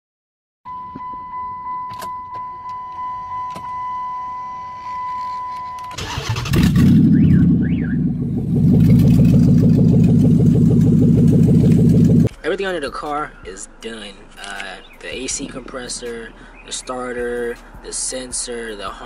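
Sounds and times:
car electronic chime: 0.7s - 6.2s
car engine cranking and running: 6.0s - 12.3s.

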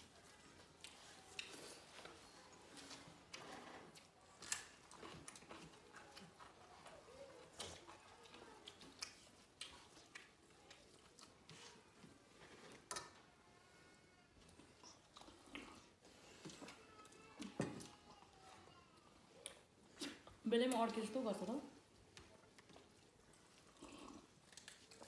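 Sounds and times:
chewing and mouth smacks: 0.0s - 11.9s, 14.4s - 16.8s, 21.8s - 25.0s.

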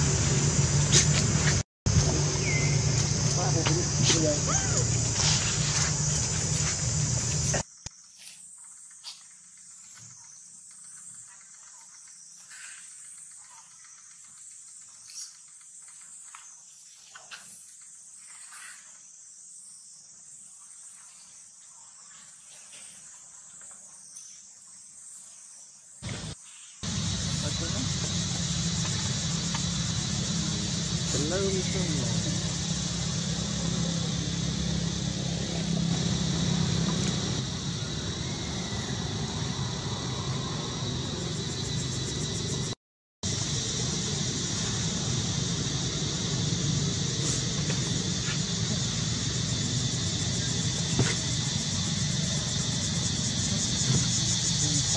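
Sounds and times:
constant high hum: 0.0s - 16.3s, 26.0s - 54.9s
high-pitched insect chorus: 0.0s - 54.9s.

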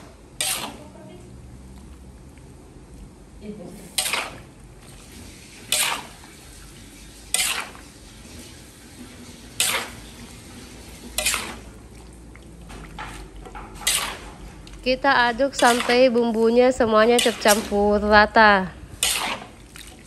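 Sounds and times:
metal spatula scraping a wok: 0.4s - 0.9s, 3.9s - 4.5s, 5.2s - 6.3s, 7.0s - 11.7s, 13.0s - 14.6s, 15.5s - 18.2s, 19.0s - 19.6s.

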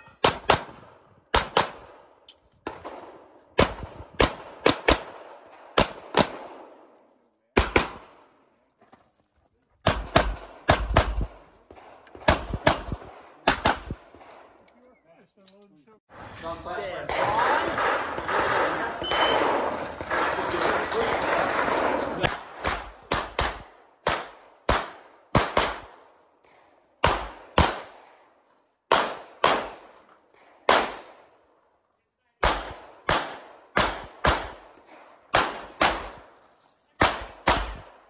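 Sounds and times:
pistol shots with echo: 0.2s - 6.8s, 7.5s - 8.4s, 9.8s - 14.6s, 17.1s - 20.2s, 21.2s - 26.1s, 27.0s - 28.2s, 28.9s - 29.9s, 30.6s - 31.4s, 32.4s - 36.4s, 37.0s - 38.0s.

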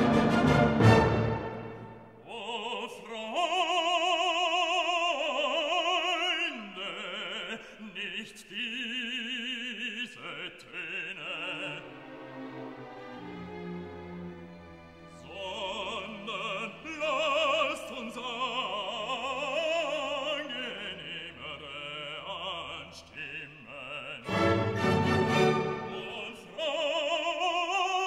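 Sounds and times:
operatic voice singing: 2.1s - 12.5s, 15.1s - 28.0s.

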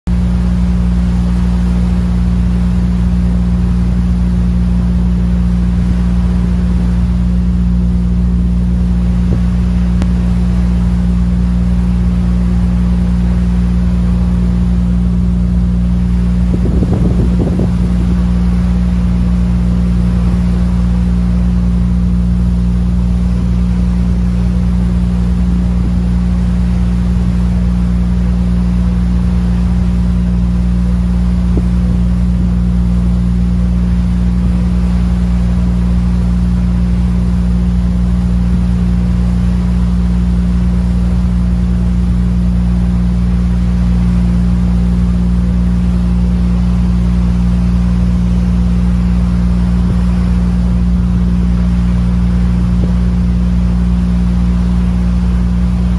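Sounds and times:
wind and water noise: 0.1s - 55.9s
brief low rumble: 13.8s - 23.5s.

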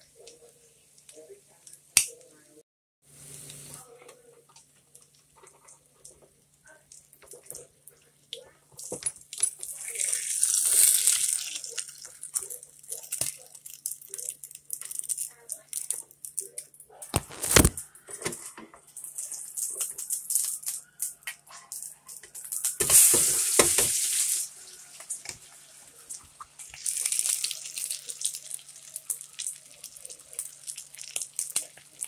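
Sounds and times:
patties sizzling in hot oil: 3.1s - 3.9s, 9.5s - 16.4s, 19.0s - 32.0s.

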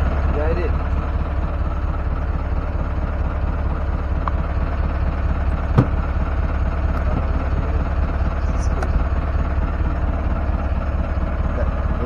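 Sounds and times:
boat engine running: 0.0s - 12.0s
sharp knock: 5.7s - 6.0s.

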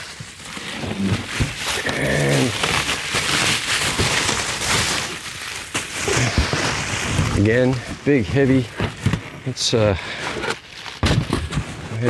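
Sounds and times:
bubble wrap crinkling: 0.0s - 12.0s
plate shifting in cardboard box: 6.0s - 12.0s.

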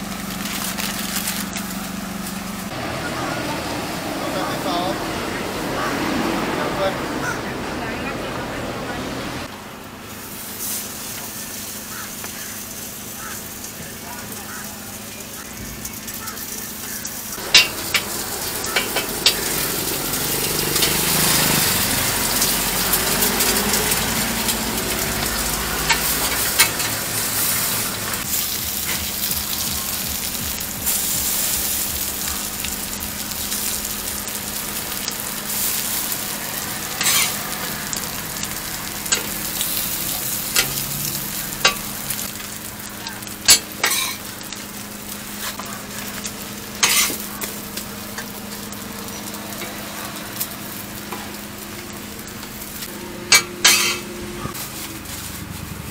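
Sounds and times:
food sizzling on a griddle: 0.0s - 2.8s, 10.0s - 55.9s
metal scraper clicking on griddle: 53.3s - 54.0s.

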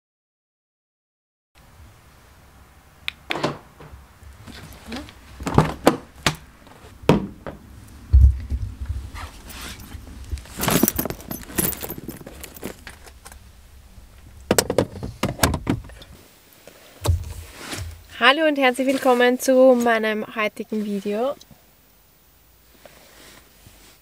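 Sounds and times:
rummaging in handbag: 4.4s - 5.9s, 9.2s - 13.4s
zip: 9.2s - 13.1s
keys jangling: 9.4s - 13.4s
car door shutting thump: 14.5s - 16.0s.

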